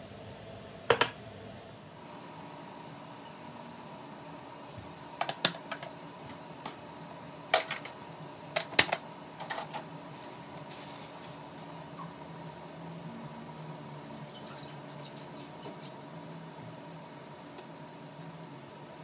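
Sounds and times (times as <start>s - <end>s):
steady background hum: 0.0s - 19.0s.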